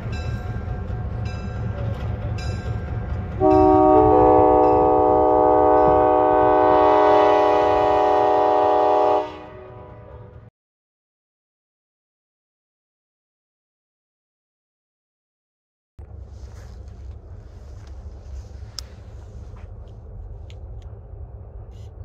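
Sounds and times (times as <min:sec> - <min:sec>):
locomotive bell ringing: 0:00.0 - 0:06.3
air horn chord blast: 0:03.4 - 0:10.4
low engine rumble: 0:16.0 - 0:22.0.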